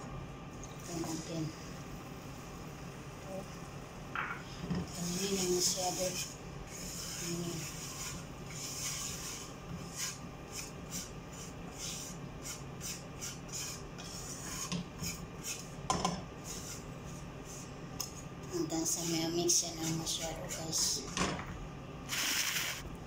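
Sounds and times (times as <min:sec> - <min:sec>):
wire whisk scraping a pan: 0:04.7 - 0:21.1.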